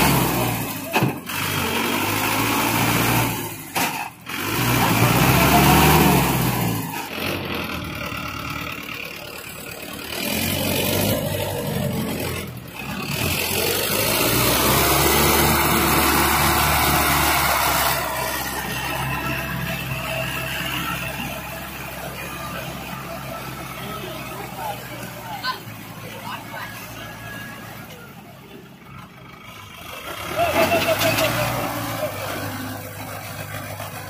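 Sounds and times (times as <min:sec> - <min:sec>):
tractor engine revving: 0:00.0 - 0:34.0.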